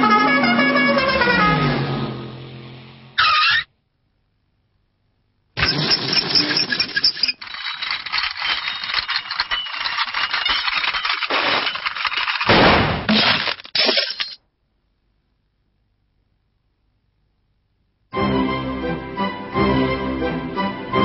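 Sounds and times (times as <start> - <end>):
cartoon rattle of clicks and knocks: 5.6 - 14.4.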